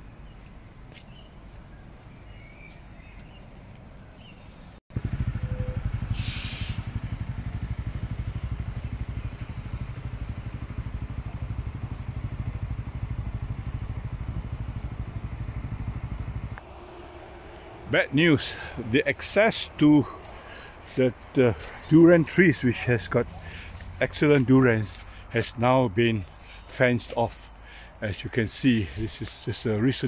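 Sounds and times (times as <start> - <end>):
bird chirps: 0.0 - 5.8, 13.5 - 15.2
brief hiss: 6.0 - 7.0.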